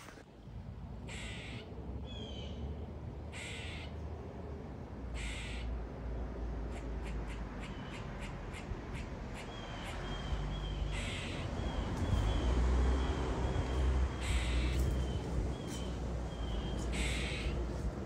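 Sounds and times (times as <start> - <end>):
squirrel barking alarm calls: 1.1 - 2.6, 3.3 - 4.0, 5.2 - 5.8, 6.7 - 17.6.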